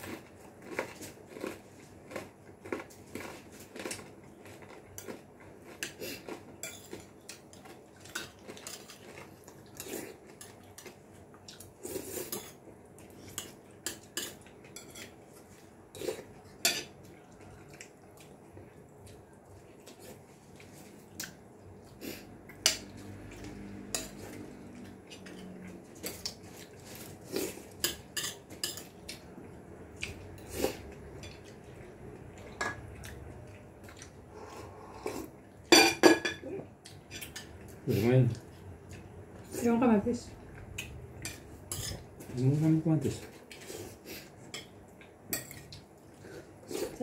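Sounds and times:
spoons plates and bowls clinking: 27.8s - 29.0s.

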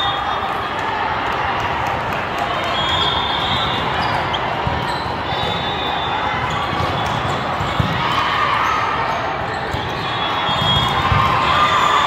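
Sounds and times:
balls thudding and bouncing: 6.5s - 8.2s.

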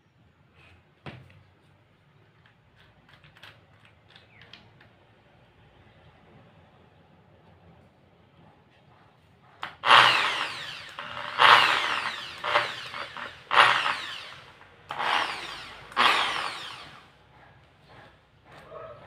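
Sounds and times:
impact drill bursts: 9.6s - 17.2s.

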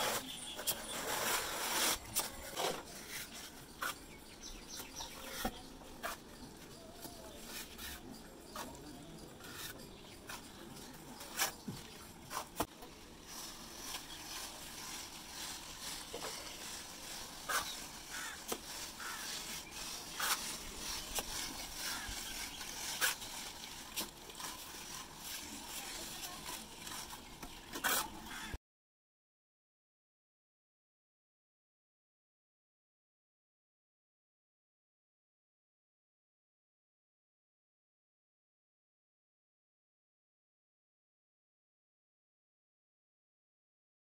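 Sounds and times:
hand float scraping plaster: 0.0s - 28.6s.

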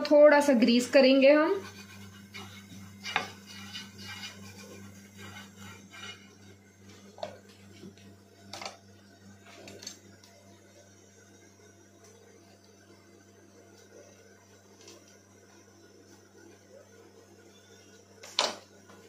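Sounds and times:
brush scraping and tapping pan: 1.6s - 7.4s.

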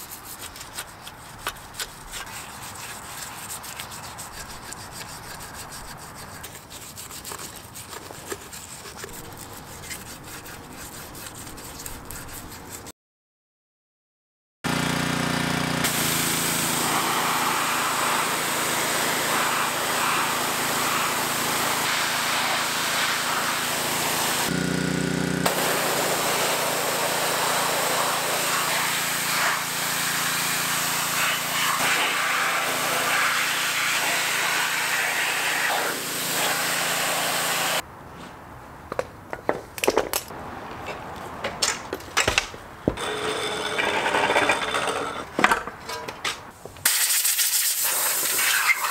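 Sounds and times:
sharp clicks and scrapes: 0.0s - 12.9s
pressure washer jet hissing: 15.5s - 37.8s.

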